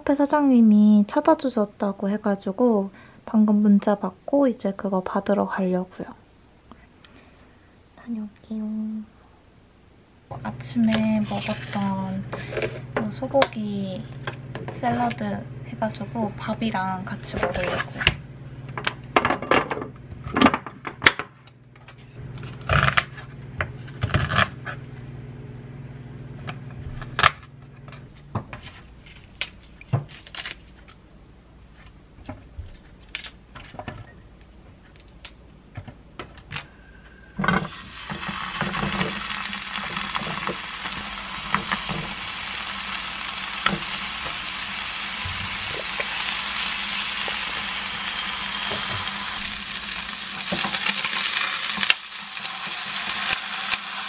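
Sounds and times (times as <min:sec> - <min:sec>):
meat sizzling in a pan: 0:37.7 - 0:54.0.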